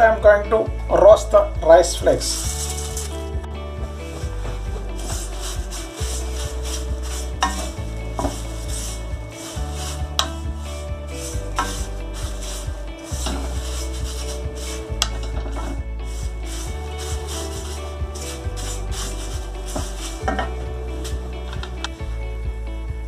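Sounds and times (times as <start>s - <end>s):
background music with low bass: 0.0s - 23.0s
spatula scraping dry flakes in pan: 2.2s - 3.3s, 4.2s - 21.3s.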